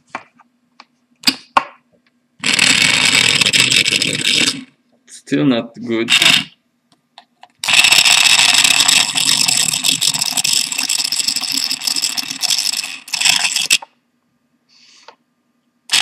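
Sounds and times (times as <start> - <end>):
juicer motor rattling: 2.4 - 4.6, 7.6 - 13.8.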